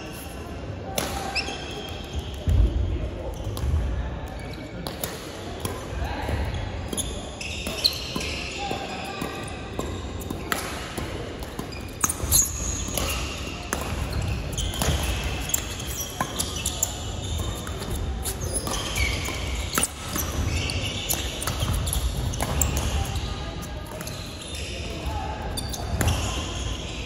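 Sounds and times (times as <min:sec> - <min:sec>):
shoe squeaks: 0:01.2 - 0:02.4, 0:06.9 - 0:10.2, 0:11.7 - 0:27.0
racket hitting shuttlecock: 0:09.2 - 0:23.0.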